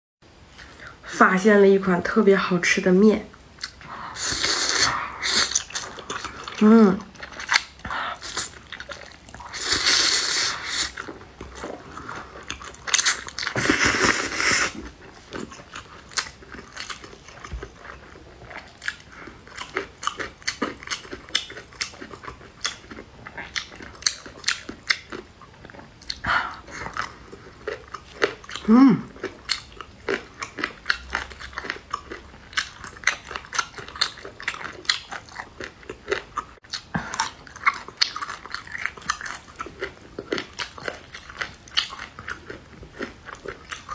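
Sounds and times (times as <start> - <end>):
wet chewing and crunching: 3.3 - 4.0, 4.7 - 43.9
slurping noodles: 9.4 - 12.2, 13.0 - 14.9.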